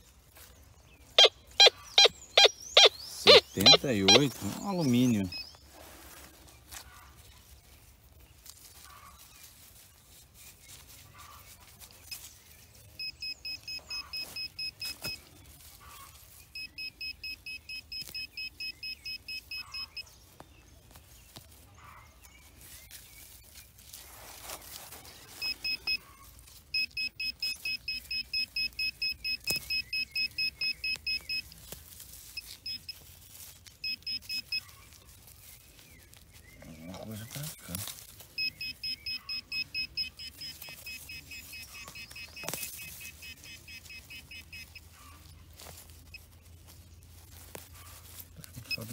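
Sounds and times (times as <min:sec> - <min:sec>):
pinpointer probe beeping: 0:01.2 - 0:04.4, 0:13.0 - 0:15.2, 0:16.6 - 0:20.0, 0:26.7 - 0:31.5, 0:32.4 - 0:33.0, 0:33.8 - 0:34.7, 0:38.4 - 0:44.8.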